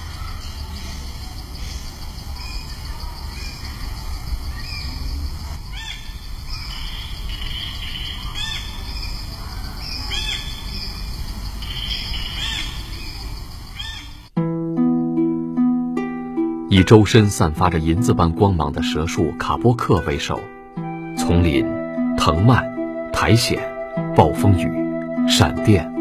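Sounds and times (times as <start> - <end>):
forest birds calling: 0.0 - 14.4
steady outdoor hiss: 0.0 - 26.0
plucked-string music: 14.4 - 26.0.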